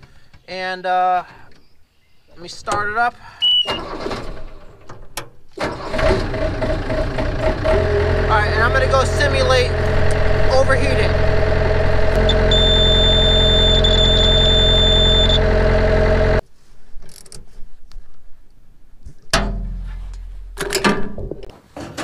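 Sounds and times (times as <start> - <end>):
diesel engine idling: 6.2 - 16.4
warning buzzer tone: 9.7 - 16.4.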